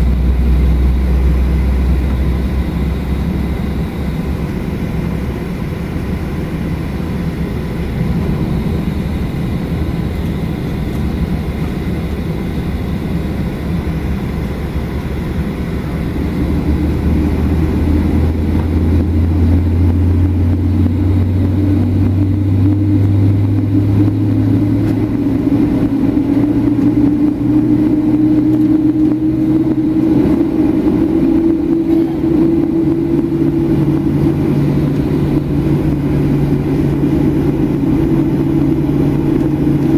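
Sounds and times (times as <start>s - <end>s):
rising engine tone: 0.0s - 5.3s, 15.0s - 39.9s
jet engines droning in cabin: 0.0s - 39.9s
low hum: 0.0s - 39.9s.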